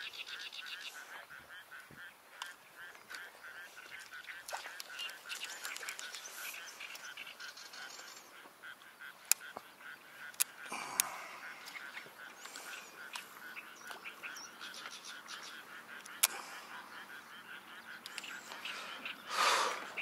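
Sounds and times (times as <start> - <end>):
repeated animal calls: 0.0 - 20.0
sharp clicks: 4.0 - 7.1, 9.2 - 14.0, 14.8 - 16.5, 17.9 - 18.7.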